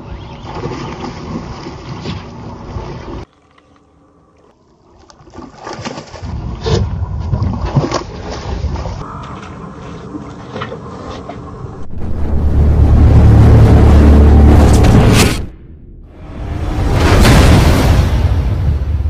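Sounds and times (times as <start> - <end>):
sharp water splashes: 4.9 - 9.0.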